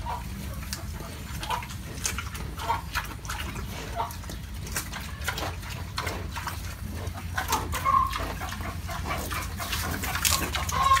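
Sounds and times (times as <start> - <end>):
pig chewing and crunching: 0.0 - 11.0
pig squeak: 7.4 - 11.0.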